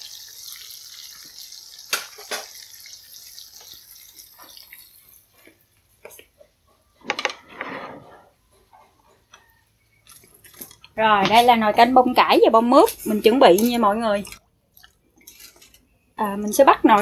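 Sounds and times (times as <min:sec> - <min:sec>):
hot oil sizzling in a pan: 0:00.0 - 0:05.4.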